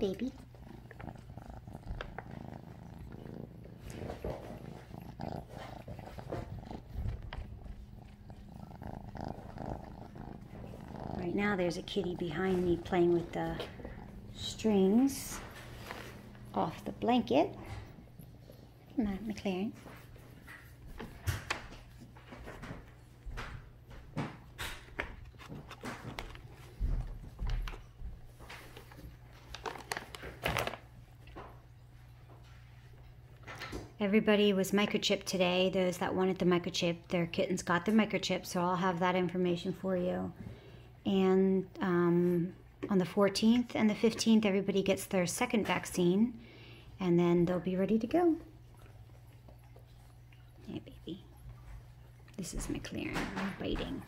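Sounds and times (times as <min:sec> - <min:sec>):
kittens purring: 0:00.0 - 0:32.4.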